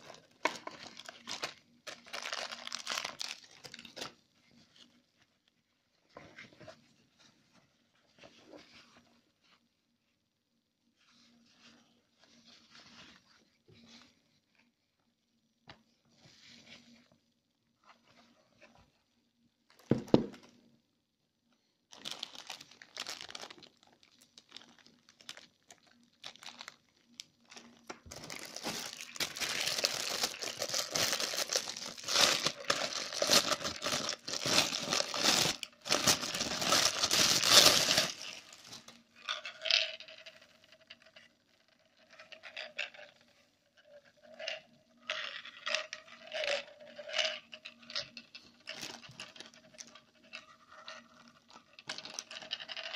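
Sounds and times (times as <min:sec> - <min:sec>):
plastic bag crinkling: 0:00.0 - 0:04.2, 0:21.9 - 0:39.8, 0:46.3 - 0:50.4.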